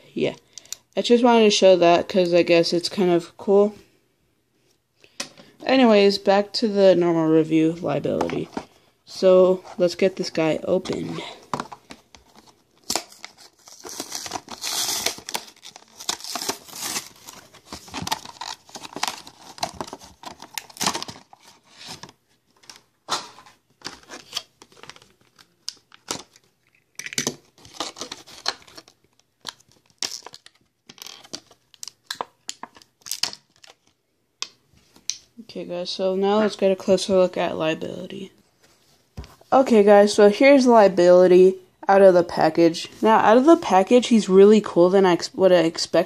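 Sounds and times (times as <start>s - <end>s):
plastic packaging tearing and crinkling: 12.2s - 34.0s.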